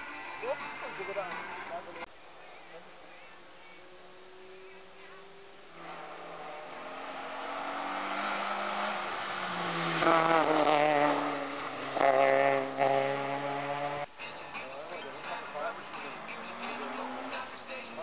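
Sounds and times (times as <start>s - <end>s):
race car engine accelerating: 3.6s - 14.1s, 15.7s - 18.0s.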